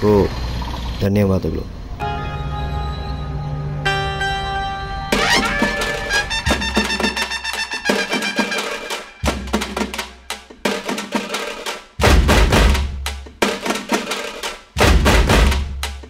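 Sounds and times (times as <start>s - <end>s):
drum and percussion track: 5.1s - 16.0s
heavy deep bass drum hits: 12.0s - 13.1s, 14.8s - 15.8s.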